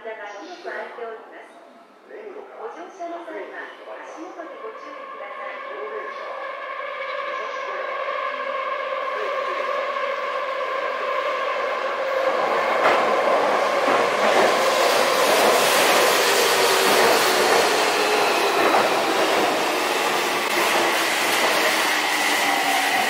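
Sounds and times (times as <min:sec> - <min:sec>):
train wheels rumbling: 0:07.8 - 0:23.0
wheels clacking over rail joints: 0:12.3 - 0:21.7.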